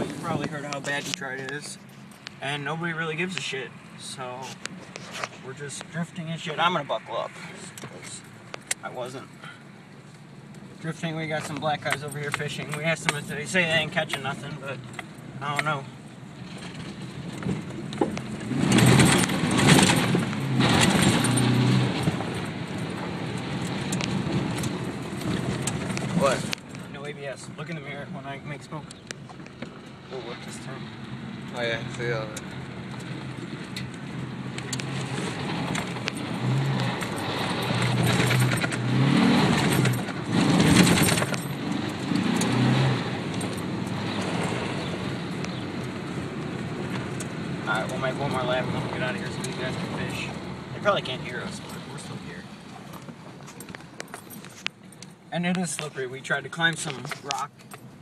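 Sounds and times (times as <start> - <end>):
truck engine accelerating: 16.4 - 26.9, 28.8 - 54.4
tyre noise on dirt track: 34.5 - 57.6.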